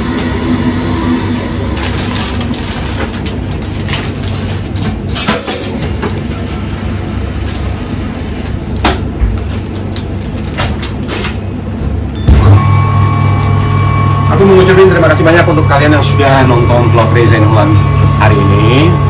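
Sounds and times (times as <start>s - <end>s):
kitchen machinery humming: 0.0s - 19.0s
plastic bags rustling: 1.7s - 5.2s.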